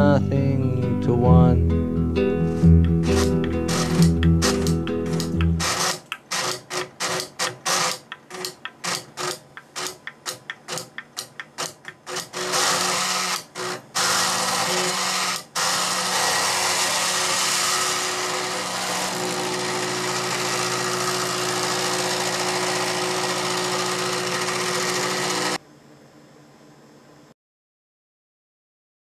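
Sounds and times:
plotter stepper motors buzzing: 3.0 - 10.0, 11.6 - 25.6
faint hum: 25.6 - 27.4.

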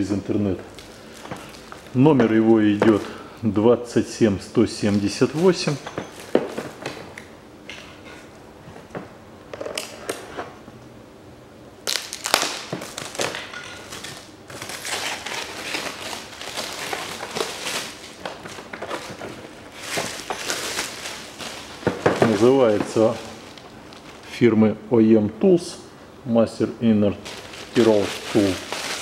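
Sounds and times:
plastic shrink wrap crinkling: 0.0 - 3.2, 4.4 - 7.0, 11.9 - 24.4, 27.1 - 29.0.

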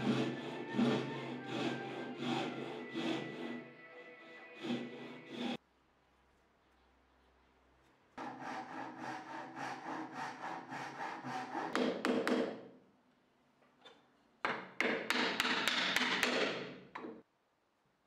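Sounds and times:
hand saw cutting wood: 0.0 - 5.6, 8.2 - 12.5.

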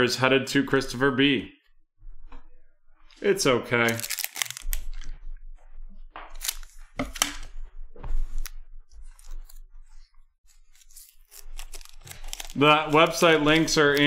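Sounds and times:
foil wrapper crinkling: 3.8 - 5.1, 6.3 - 6.8, 10.5 - 14.0
sharp crackles: 3.9 - 5.1.

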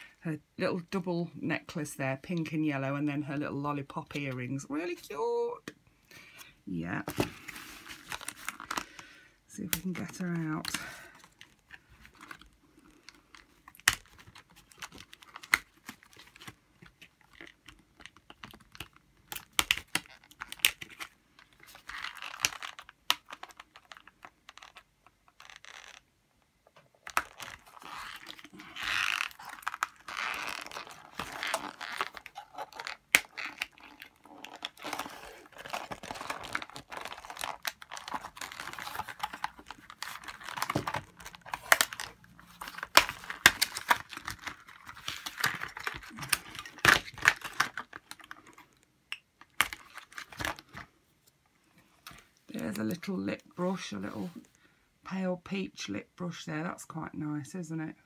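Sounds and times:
cardboard packaging crinkling: 6.9 - 26.1, 26.8 - 51.0.

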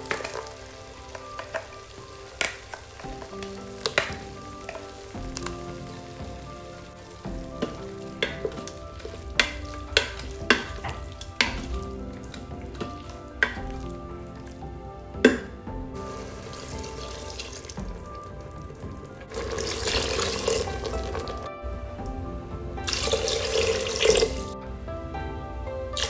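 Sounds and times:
water pouring into a pot: 0.0 - 14.7, 15.3 - 21.5, 22.8 - 24.6
spatula knocking against pot: 7.5 - 13.9.

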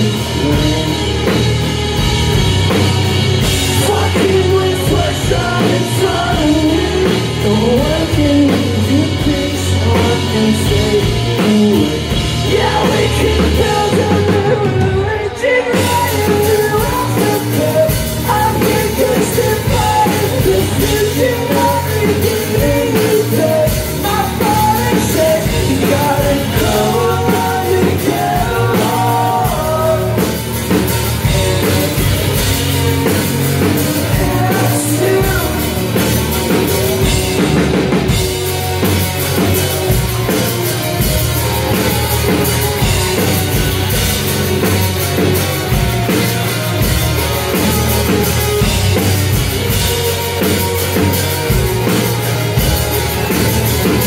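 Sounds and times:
bass: 0.0 - 54.0
distorted electric guitars: 0.0 - 54.0
drum kit: 0.0 - 54.0
person singing: 3.4 - 38.4.

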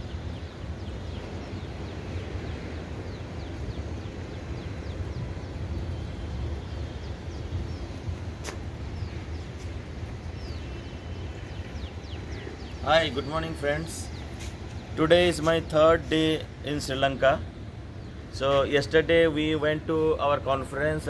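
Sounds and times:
high falling bird chirps: 0.0 - 19.8
sharp click: 8.4 - 8.6.

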